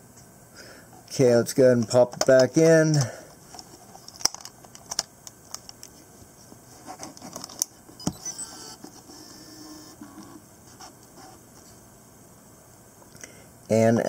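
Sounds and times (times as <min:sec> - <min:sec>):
camera powering on whir: 0:07.9 - 0:10.4.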